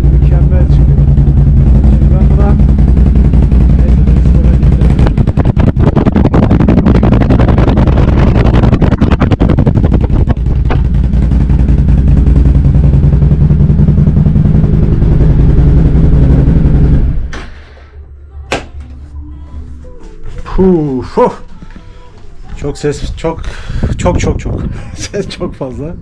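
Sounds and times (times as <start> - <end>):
sharp exhaust pulses: 0.0 - 17.8
engine running loud and deep: 0.0 - 18.2.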